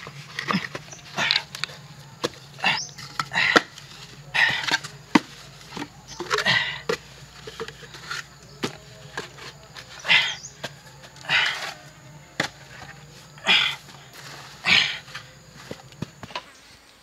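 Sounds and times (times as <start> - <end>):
bamboo poles knocking: 0.0 - 11.8.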